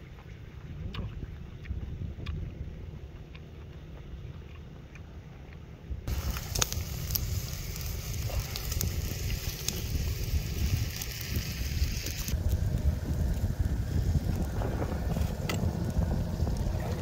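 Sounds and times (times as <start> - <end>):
low rumble: 5.8 - 17.0
meat sizzling on a grill: 6.1 - 16.5.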